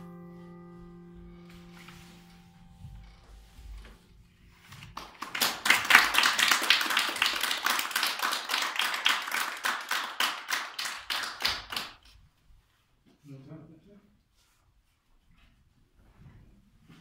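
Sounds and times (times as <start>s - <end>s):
grand piano chord: 0.0s - 5.2s
audience applauding: 4.8s - 12.1s.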